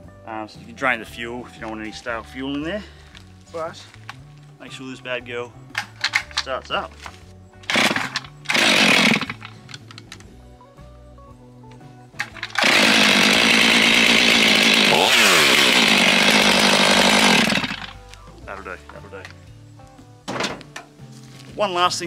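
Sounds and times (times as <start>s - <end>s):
chainsaw engine running: 7.6s - 9.5s, 12.2s - 18.1s
chainsaw starter cord pulls: 7.6s - 10.2s, 12.2s - 18.0s.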